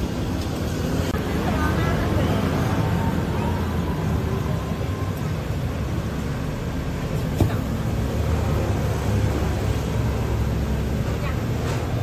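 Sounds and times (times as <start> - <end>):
busy street rumble: 0.0 - 12.0
faint voices: 1.2 - 5.8.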